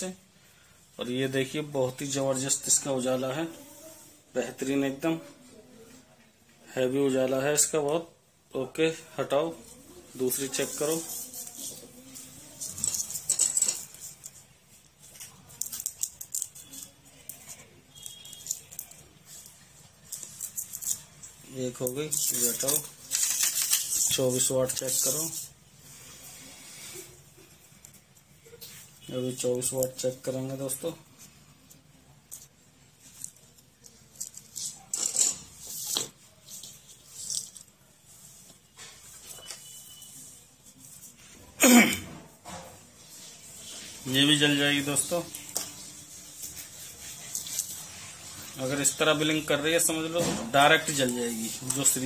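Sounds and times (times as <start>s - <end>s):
cables rustling on floor: 9.6s - 41.6s, 42.4s - 52.0s.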